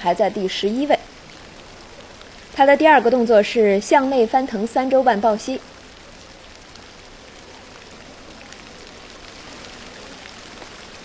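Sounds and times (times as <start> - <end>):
water spraying onto pool: 0.0 - 11.0
faint ticks: 1.0 - 2.6, 5.6 - 11.0.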